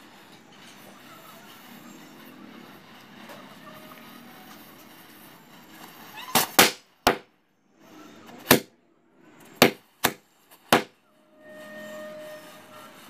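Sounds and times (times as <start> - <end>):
hiss of burning matches: 0.0 - 8.6
firecracker bangs: 6.3 - 7.3, 8.5 - 8.7.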